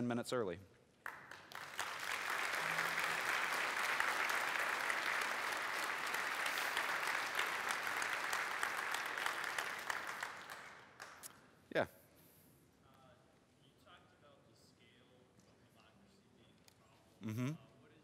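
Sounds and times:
large audience applauding: 1.0 - 11.3.

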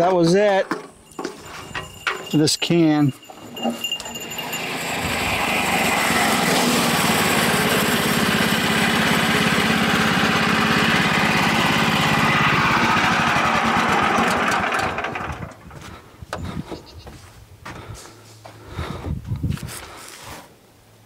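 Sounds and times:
small gas engine running: 3.1 - 16.0.

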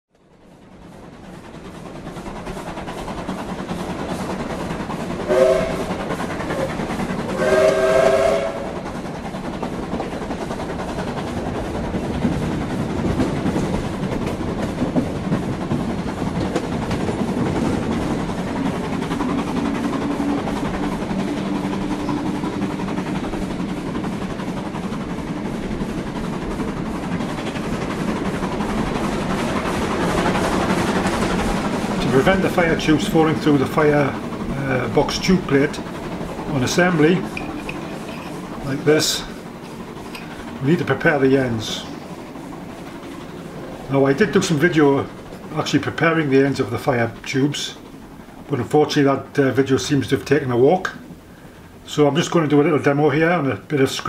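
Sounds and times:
steam locomotive rumbling: 0.2 - 54.0
steam whistle blasts: 5.3 - 5.9, 7.3 - 8.8.

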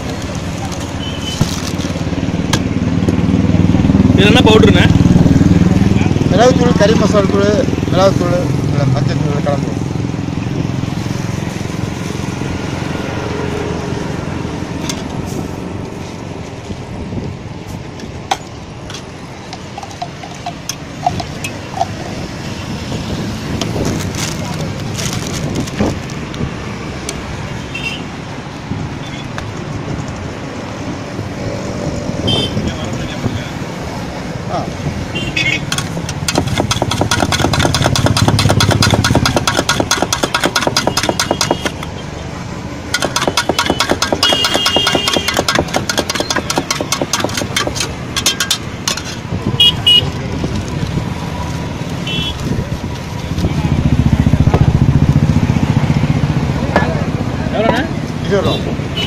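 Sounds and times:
road traffic noise: 0.0 - 59.0
spoon clinking in steel tumbler: 19.6 - 22.0
vehicle horn toots: 32.2 - 32.7, 35.1 - 35.8, 43.6 - 45.6, 49.6 - 50.2, 52.0 - 52.4
sharp knocks: 35.7 - 41.9, 42.9 - 49.1.

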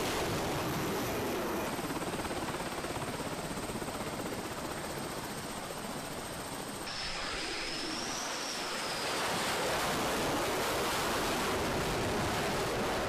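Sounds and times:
high turbine whine: 0.0 - 13.0
jet engine roar: 6.8 - 13.0.

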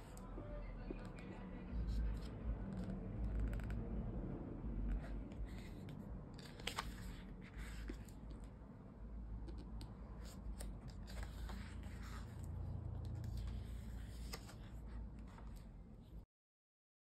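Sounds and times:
low rumble: 0.4 - 15.6
paper pages rustling: 4.9 - 8.5, 9.5 - 15.8.

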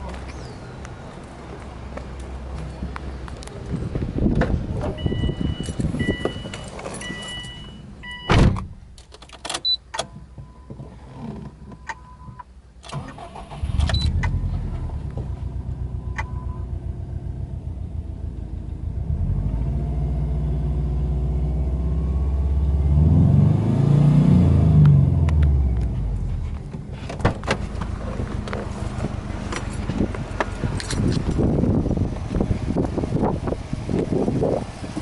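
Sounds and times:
electronic warning chime beeps: 5.0 - 8.3
car door thud: 8.3 - 8.8, 27.1 - 27.9
car engine idling: 25.7 - 35.0.

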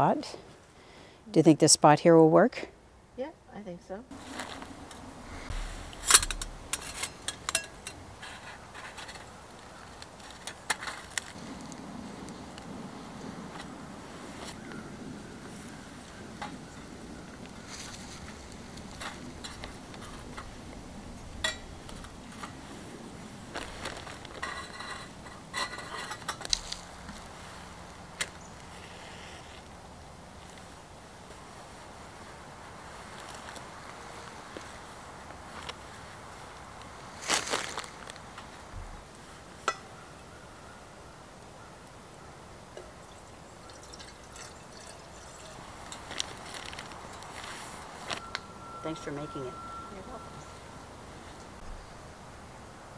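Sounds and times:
light scraping: 4.2 - 9.4
metal panels clicking and clinking: 5.5 - 8.0
twigs clicking and rustling: 26.4 - 27.3, 36.8 - 38.6, 43.0 - 48.3.

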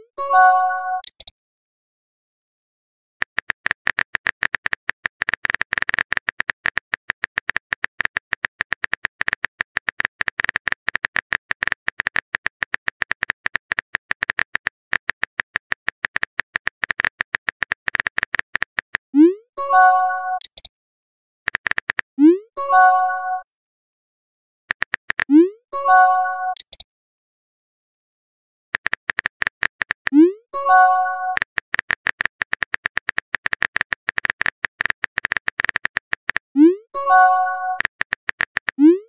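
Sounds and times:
phone keyboard typing clicks: 1.0 - 1.3, 3.2 - 19.1, 21.5 - 22.1, 24.7 - 25.4, 26.5 - 26.8, 28.8 - 36.5, 37.1 - 39.0.

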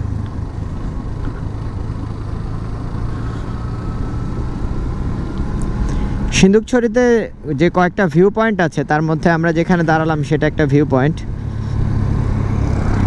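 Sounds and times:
motorcycle engine running: 0.0 - 6.4
wind and road noise: 0.0 - 13.0.

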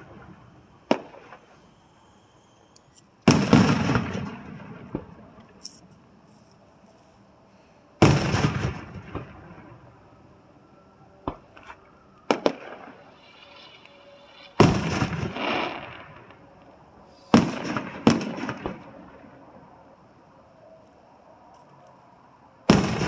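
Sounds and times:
firework shells bursting: 2.8 - 6.0, 11.3 - 16.4, 17.2 - 19.0.

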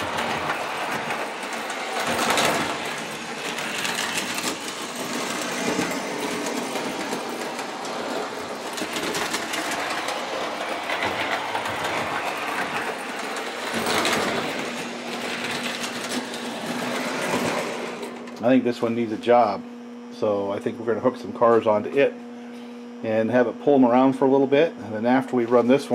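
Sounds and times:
toy train wheels rattling: 0.0 - 18.3
toy train motor whirring: 0.0 - 18.4.

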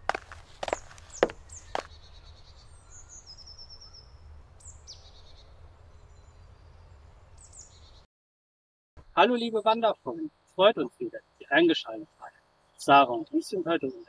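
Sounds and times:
sharp knocks: 0.0 - 1.9
songbirds chirping and trilling: 0.0 - 8.1, 9.0 - 14.0.

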